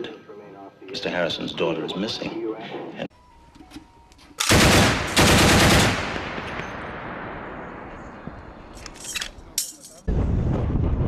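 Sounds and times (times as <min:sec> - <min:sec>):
machine gun bursts: 0:04.4 - 0:06.7
gunfire echo: 0:04.4 - 0:08.8.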